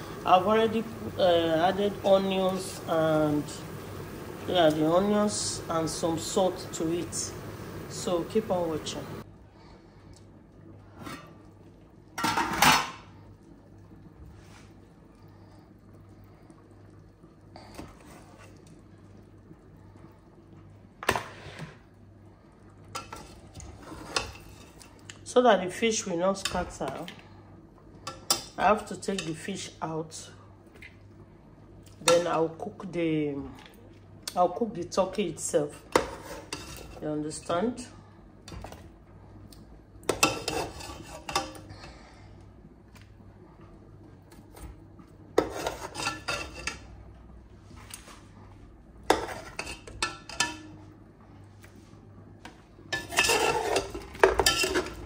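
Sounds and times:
low steady hum: 0:00.0 - 0:55.0
metal spoon scraping a pot: 0:23.0 - 0:24.9, 0:35.9 - 0:37.0, 0:40.1 - 0:41.6, 0:45.4 - 0:46.8, 0:49.1 - 0:50.6, 0:52.9 - 0:55.0.

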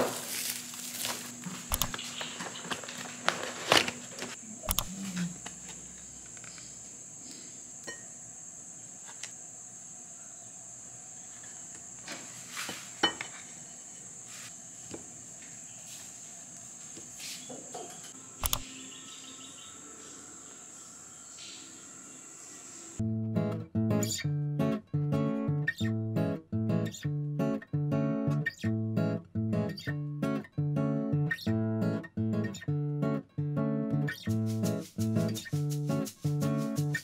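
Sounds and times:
soft clicks: 0:01.7 - 0:02.0, 0:04.7 - 0:04.9, 0:18.4 - 0:18.7
steady high-pitched whine: 0:13.0 - 0:23.0.

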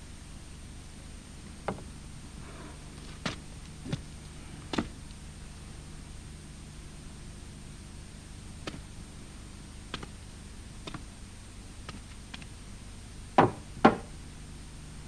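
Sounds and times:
steady low hum: 0:00.0 - 0:15.0
sharp knocks: 0:13.4 - 0:14.1.

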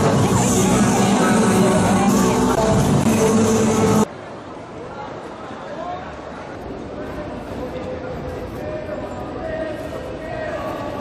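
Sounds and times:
music playing: 0:00.0 - 0:04.1.

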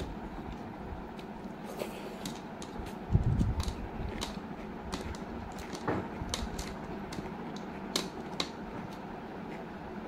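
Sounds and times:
fingers mixing rice on a plate: 0:00.4 - 0:09.8
snail shells clicking: 0:03.4 - 0:08.6.

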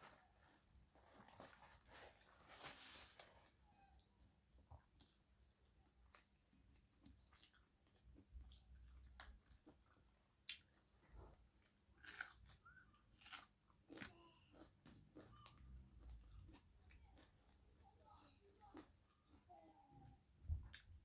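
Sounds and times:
chewing and crunching: 0:04.8 - 0:17.9.

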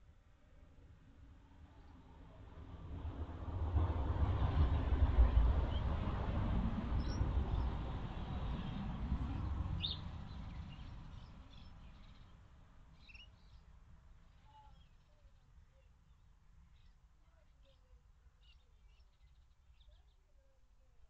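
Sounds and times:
vehicle low rumble: 0:01.2 - 0:12.7.

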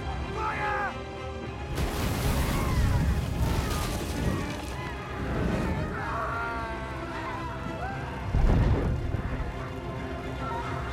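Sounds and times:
burst of flame: 0:01.7 - 0:06.1.

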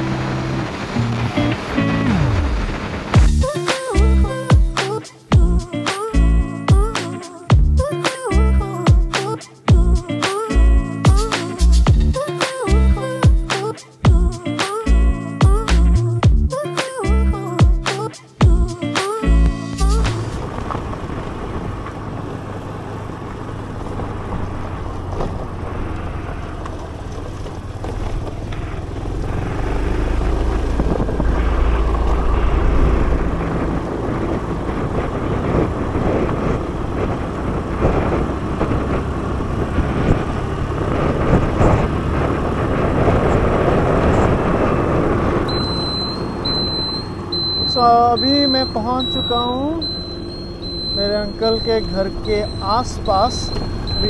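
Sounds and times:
scooter engine: 0:00.0 - 0:06.1, 0:19.7 - 0:54.0
road noise: 0:00.0 - 0:54.0
background music: 0:03.2 - 0:20.4
wind buffeting microphone: 0:19.9 - 0:48.2.

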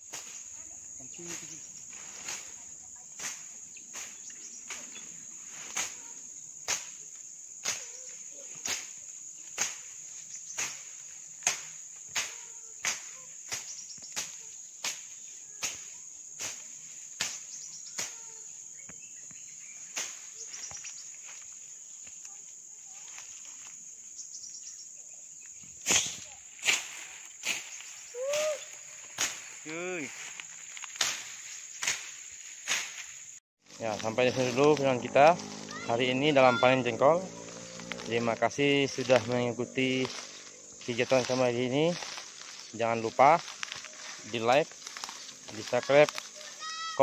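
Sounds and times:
insect chorus: 0:00.0 - 0:47.0
footsteps through dry undergrowth: 0:01.2 - 0:07.0, 0:19.2 - 0:24.0, 0:25.4 - 0:47.0.

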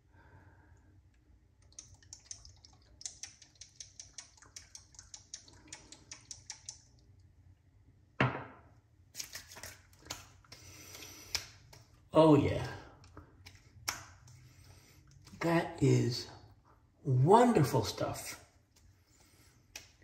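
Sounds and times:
hands slapping skin: 0:09.2 - 0:11.9, 0:13.3 - 0:14.4, 0:19.7 - 0:20.0.

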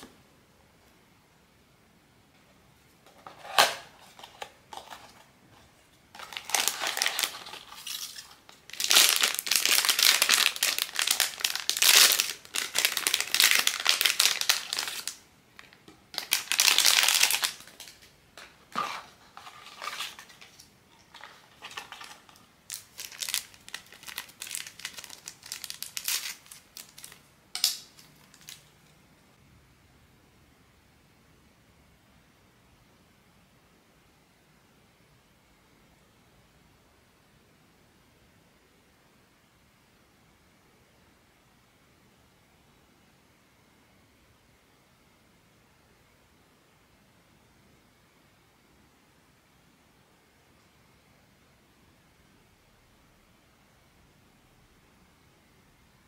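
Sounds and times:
packaging crinkling: 0:06.2 - 0:28.9.

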